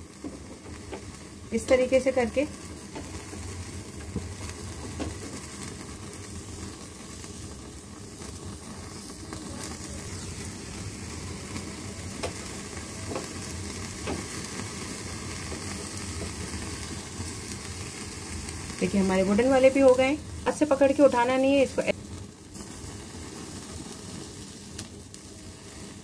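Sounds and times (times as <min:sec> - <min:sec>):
meat sizzling over flame: 0:00.0 - 0:26.0.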